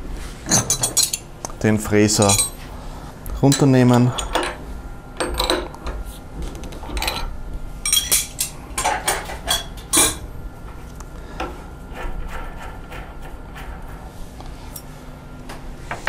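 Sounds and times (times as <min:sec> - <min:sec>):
metal tools clinking: 0:00.5 - 0:01.3, 0:02.1 - 0:02.7, 0:03.4 - 0:04.6, 0:06.9 - 0:10.2.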